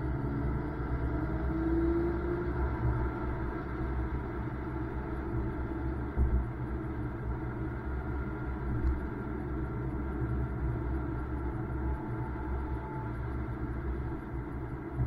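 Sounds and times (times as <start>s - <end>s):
car engine running: 0.0s - 15.0s
road noise: 0.0s - 15.0s.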